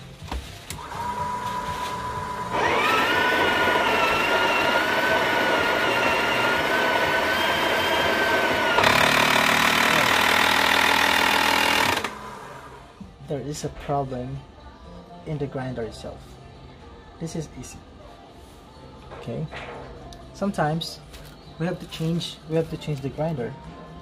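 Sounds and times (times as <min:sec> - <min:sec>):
coffee grinder whining and grinding: 0:00.8 - 0:12.8.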